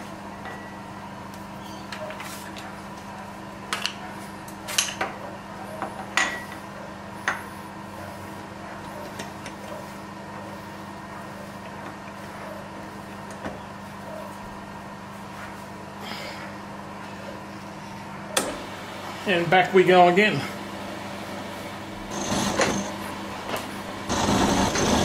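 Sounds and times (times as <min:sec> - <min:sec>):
machine hum: 0:05.2 - 0:25.0.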